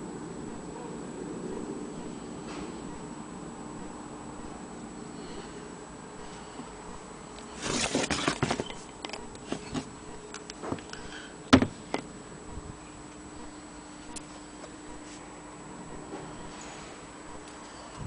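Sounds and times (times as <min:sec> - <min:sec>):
rustling and clattering: 0:07.4 - 0:12.0.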